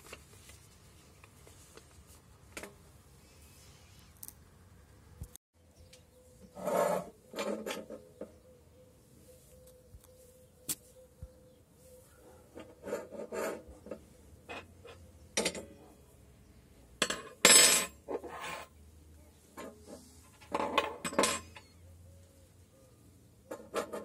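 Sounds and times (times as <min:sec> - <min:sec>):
steel scraping on steel: 0:06.5 - 0:08.1, 0:12.6 - 0:14.0.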